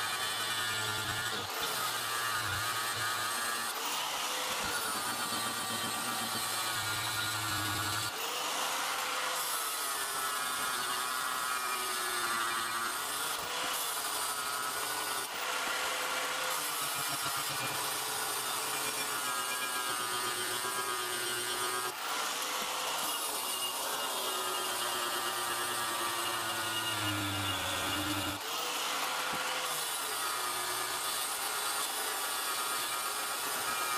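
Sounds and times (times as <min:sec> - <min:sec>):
angle grinder grinding metal: 0:00.0 - 0:33.9.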